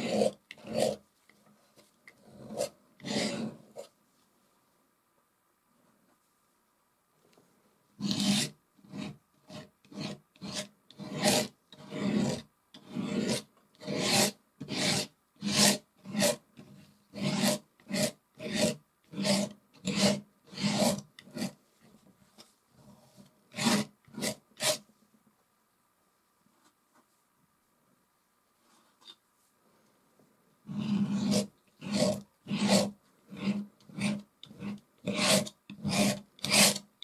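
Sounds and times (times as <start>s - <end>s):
palette knife scraping canvas: 0.0s - 1.0s, 1.6s - 3.9s, 8.0s - 21.6s, 22.8s - 24.8s, 30.7s - 36.9s.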